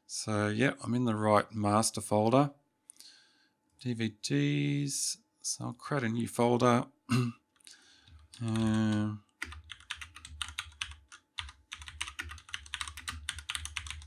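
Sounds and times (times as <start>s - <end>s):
person murmuring: 7.1s - 7.3s, 8.4s - 9.2s
keyboard typing: 8.1s - 14.0s.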